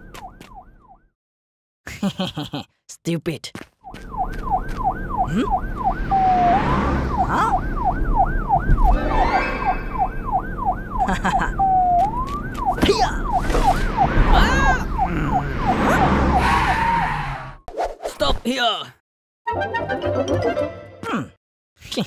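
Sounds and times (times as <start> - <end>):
police siren yelping: 3.9 - 17.6.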